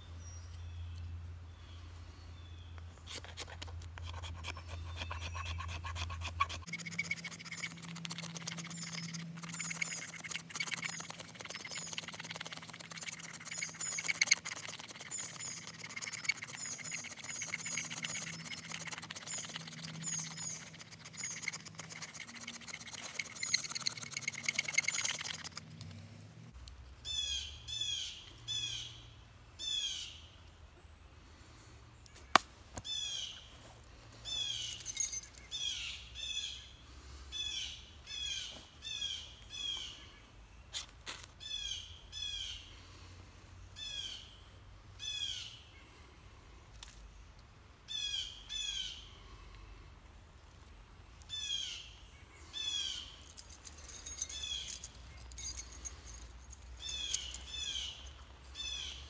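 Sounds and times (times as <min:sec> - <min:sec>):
knife blade shaving wood: 0:03.1 - 0:25.6
birds chirping: 0:04.2 - 0:25.6, 0:27.0 - 0:36.8, 0:51.3 - 0:59.0.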